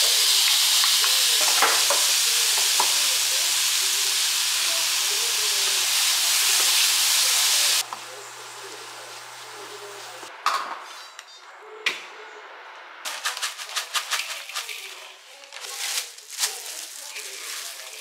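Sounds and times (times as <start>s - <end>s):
plastic glove rustling: 13.1s - 18.0s
plastic packet crinkling: 13.1s - 18.0s
seaweed flakes pouring into rice: 15.6s - 18.0s.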